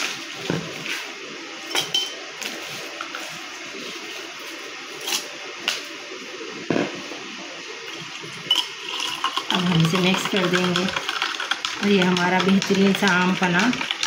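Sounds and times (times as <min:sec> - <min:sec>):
ice cubes clinking in glass: 0:08.5 - 0:13.0.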